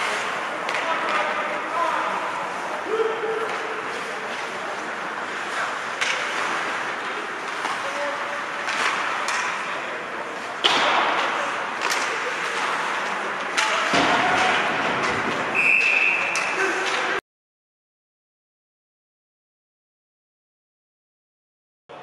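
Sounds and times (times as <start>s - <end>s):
skates scraping ice: 0.0s - 17.2s
hockey stick and puck cracks: 6.0s - 7.8s, 8.6s - 9.8s, 10.6s - 17.2s.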